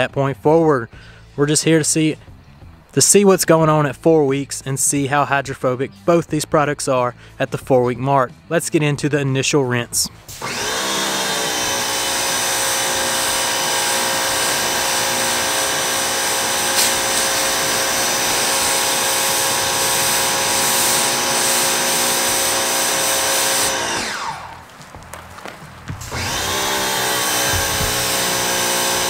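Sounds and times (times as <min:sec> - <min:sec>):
pressure washer motor whine: 0:10.3 - 0:29.0
water spray hissing: 0:10.3 - 0:29.0.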